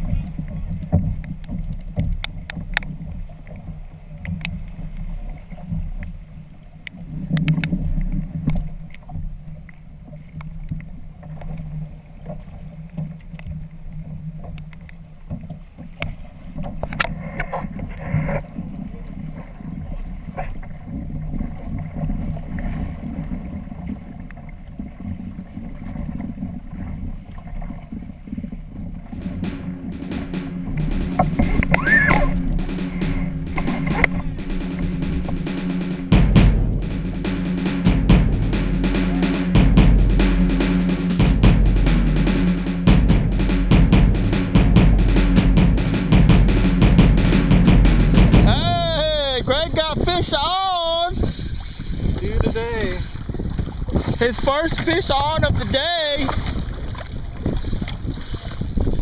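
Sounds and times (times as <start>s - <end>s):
water splashing against hull: 0.0s - 59.0s
wind rumbling on microphone: 48.4s - 59.0s.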